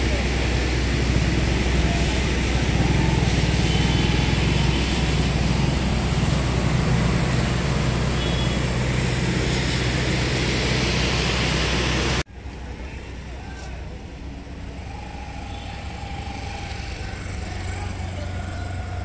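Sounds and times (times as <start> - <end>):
road noise: 0.0 - 19.0
vehicle engine hum: 0.0 - 19.0.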